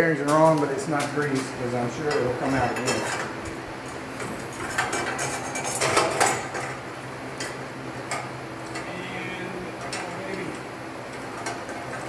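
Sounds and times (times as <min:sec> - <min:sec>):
metal parts rattling: 0:04.4 - 0:06.8.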